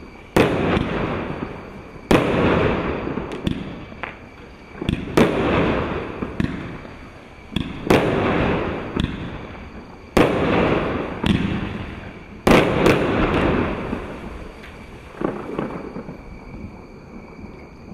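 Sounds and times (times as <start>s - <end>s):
small firework pops: 3.3s - 6.9s, 7.5s - 9.4s, 14.6s - 16.2s.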